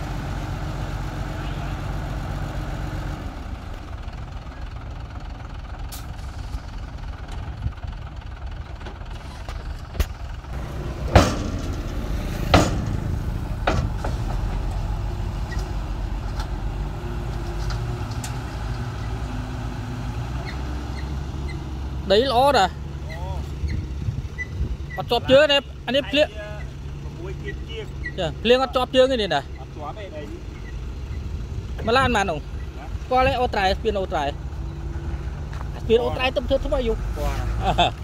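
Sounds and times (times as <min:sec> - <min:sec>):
diesel truck engine running: 0:00.0 - 0:38.0
sharp knocks: 0:10.9 - 0:14.4.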